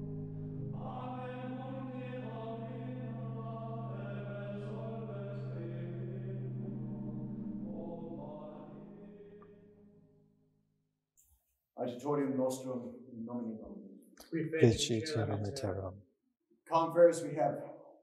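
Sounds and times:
slow sung chant: 0:00.7 - 0:09.6, 0:14.6 - 0:15.9.

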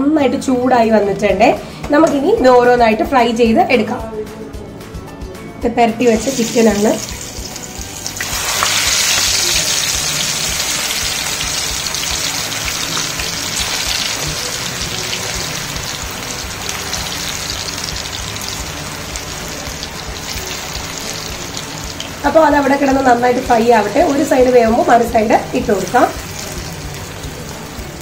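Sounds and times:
chicken sizzling in hot oil: 0:06.1 - 0:28.0.

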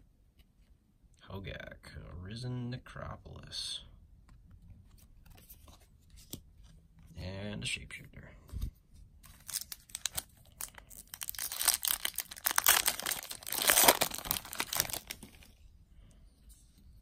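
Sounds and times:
foil wrapper tearing and crinkling: 0:09.3 - 0:15.5.

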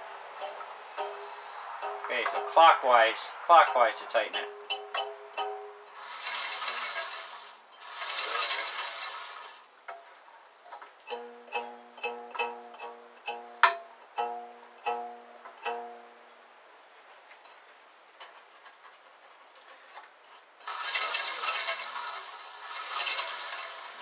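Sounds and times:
bandsaw wheel whirring: 0:05.0 - 0:09.7, 0:20.6 - 0:24.0.

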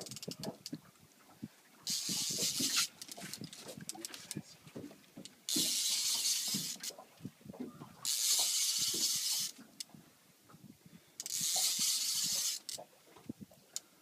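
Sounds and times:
fishing reel whirring: 0:01.9 - 0:03.3, 0:05.5 - 0:06.9, 0:08.0 - 0:09.6, 0:11.2 - 0:12.8.

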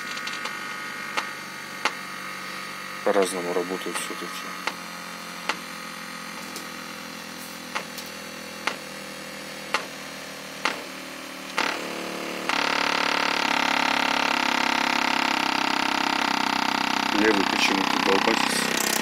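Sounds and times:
loudspeakers buzzing: 0:00.0 - 0:04.8, 0:16.2 - 0:19.0.

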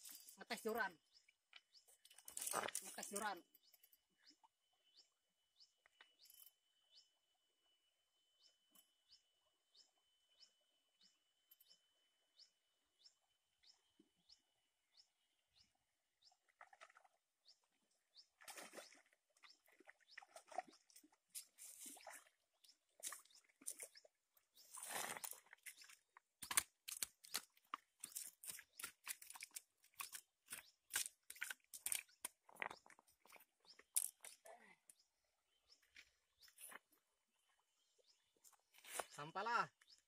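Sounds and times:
faint regular chirping: 0:00.0 - 0:40.0
footsteps splashing through shallow water: 0:16.4 - 0:34.4.

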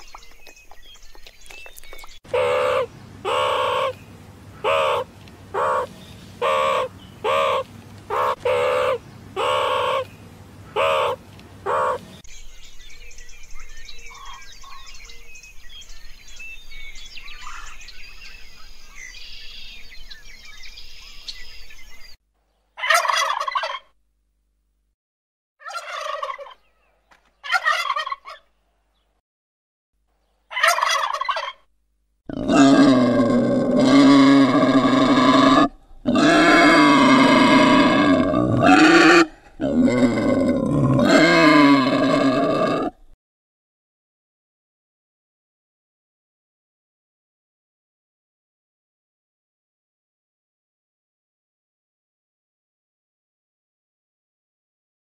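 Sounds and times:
short evenly spaced calls: 0:01.7 - 0:12.7, 0:22.7 - 0:23.9, 0:25.6 - 0:28.6, 0:30.3 - 0:31.6
turkeys gobbling: 0:02.3 - 0:04.0, 0:04.6 - 0:10.1, 0:10.7 - 0:12.1, 0:22.8 - 0:23.9, 0:25.6 - 0:26.6, 0:27.4 - 0:28.5, 0:30.5 - 0:31.6.

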